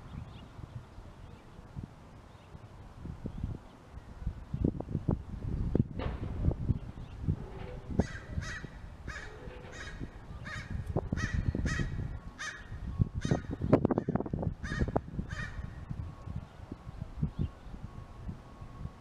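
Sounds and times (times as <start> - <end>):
low rumbling: 2.8 - 19.0
thumps: 5.9 - 8.4
crow cawing: 8.0 - 15.6.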